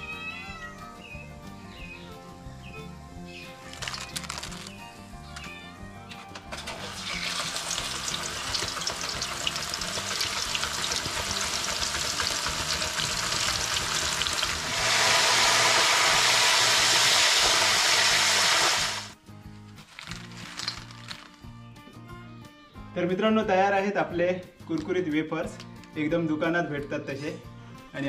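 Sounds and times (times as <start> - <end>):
banana slices sizzling in oil: 6.6 - 19.2, 19.9 - 21.4.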